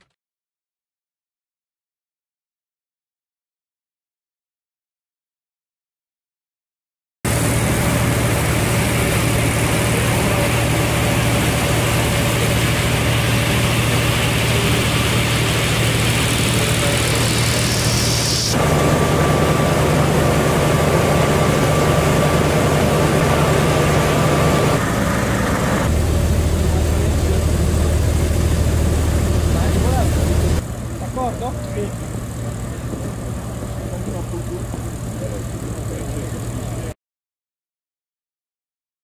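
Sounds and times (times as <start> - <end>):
heavy engine humming: 7.3 - 37.0.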